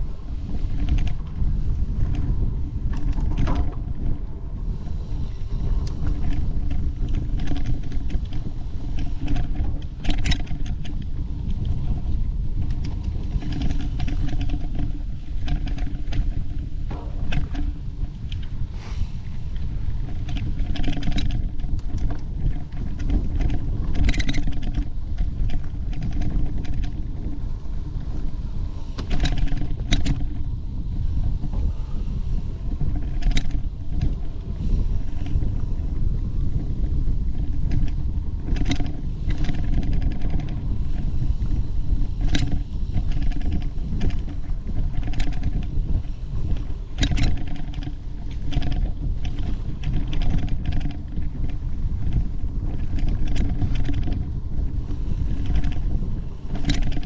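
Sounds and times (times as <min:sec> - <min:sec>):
bike knocking and rattling: 0:00.0 - 0:57.0
wind and rolling rumble: 0:00.0 - 0:57.0.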